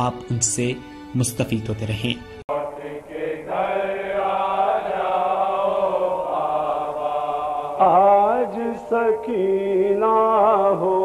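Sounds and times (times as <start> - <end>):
men chanting long note: 2.5 - 11.0.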